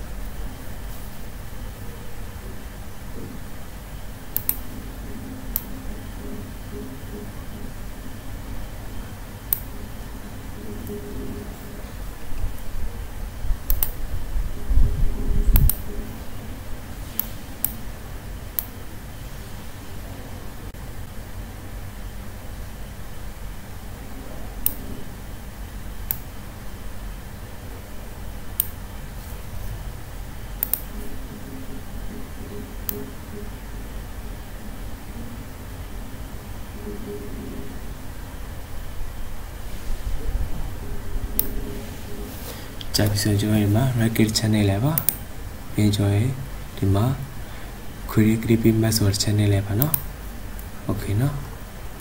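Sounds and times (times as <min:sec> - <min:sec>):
steady low hum: 0:00.0 - 0:52.0
computer mouse clicks: 0:04.3 - 0:04.7, 0:05.5 - 0:05.8, 0:09.5 - 0:09.7, 0:13.7 - 0:14.0, 0:15.5 - 0:15.9, 0:17.1 - 0:17.8, 0:24.6 - 0:25.0, 0:28.6 - 0:28.8, 0:30.6 - 0:31.0, 0:32.8 - 0:33.1, 0:41.4 - 0:41.6, 0:44.9 - 0:45.2, 0:49.8 - 0:50.7.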